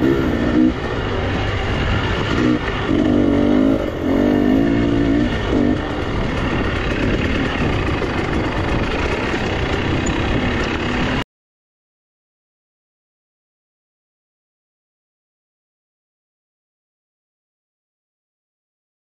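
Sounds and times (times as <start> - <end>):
motorcycle engine revving: 0.0 - 11.2
steady background noise: 0.0 - 11.2.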